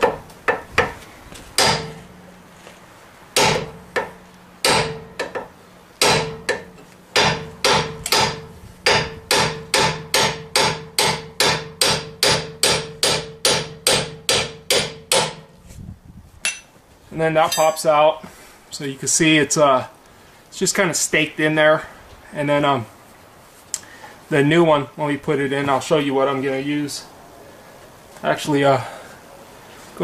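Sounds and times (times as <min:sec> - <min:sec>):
hammer blows on steel: 0:06.0 - 0:15.5.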